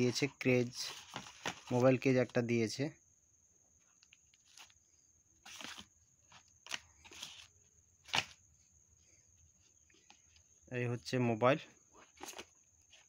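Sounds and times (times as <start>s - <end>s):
cardboard and paper rustling: 0.6s - 2.1s, 4.2s - 4.8s, 5.4s - 8.4s, 11.9s - 13.0s.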